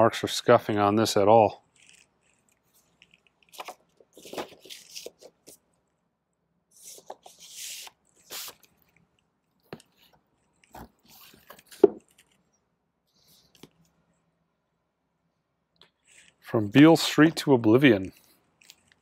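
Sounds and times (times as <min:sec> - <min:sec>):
paper sleeves rustling and sliding: 0:01.8 - 0:05.7, 0:06.7 - 0:09.0, 0:09.7 - 0:12.4.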